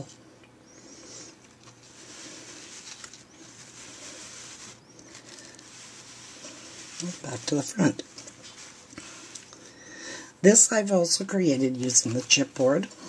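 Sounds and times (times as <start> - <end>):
paper rustling and scraping: 1.5 - 9.8, 10.8 - 13.0.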